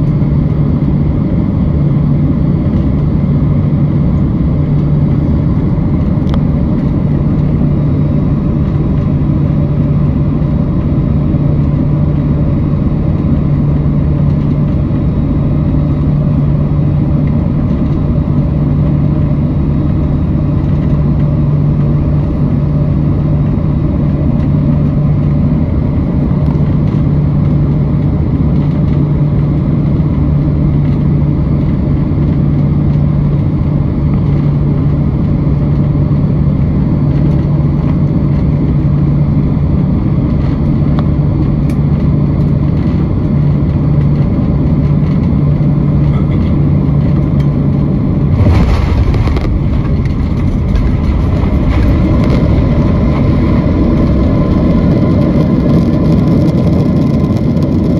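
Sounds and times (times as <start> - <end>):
airliner cabin engine rush: 0.0 - 57.9
steady low hum: 0.0 - 57.9
landing roll rumble: 48.2 - 56.5.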